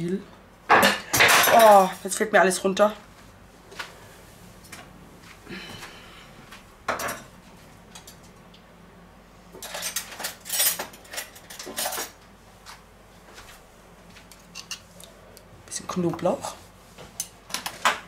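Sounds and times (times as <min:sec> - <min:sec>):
cutlery and dishes clattering: 0:00.7 - 0:01.9, 0:09.6 - 0:12.2.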